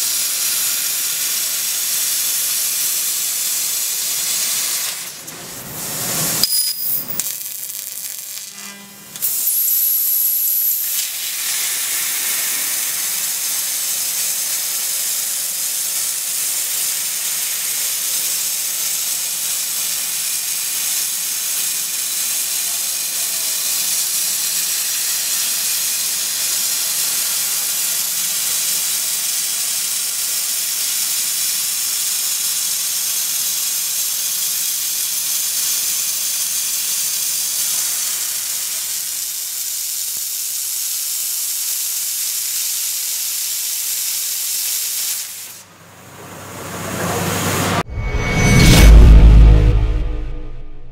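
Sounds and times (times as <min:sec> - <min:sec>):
air jet hissing: 0:10.8 - 0:14.0.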